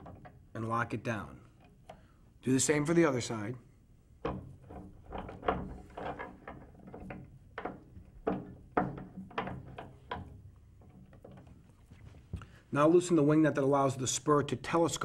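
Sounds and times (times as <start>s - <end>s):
metal clicks and knocks: 0.0s - 0.5s, 4.2s - 11.9s.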